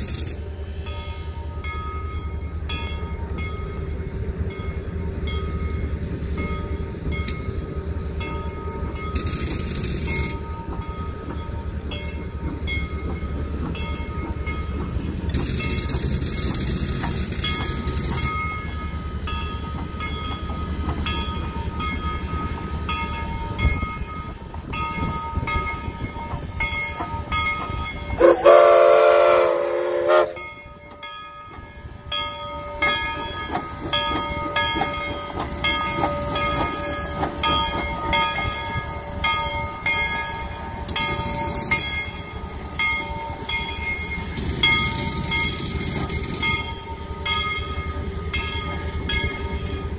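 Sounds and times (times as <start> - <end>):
steam locomotive rumbling: 0.0 - 49.9
steam hissing: 19.8 - 30.6
steam whistle blast: 28.2 - 30.6.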